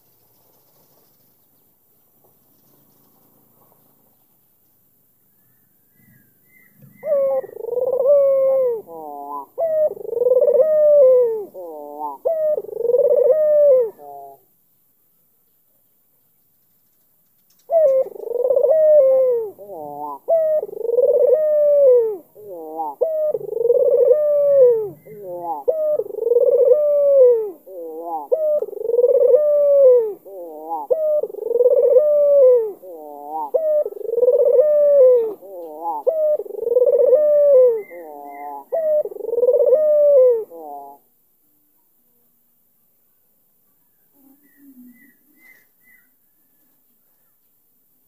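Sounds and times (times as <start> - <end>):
dove cooing: 6.5 - 14.5, 17.7 - 41.1.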